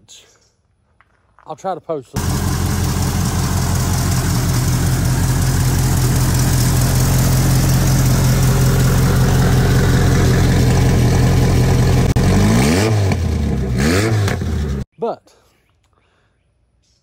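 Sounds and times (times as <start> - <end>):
race car engine idling: 2.2 - 12.3.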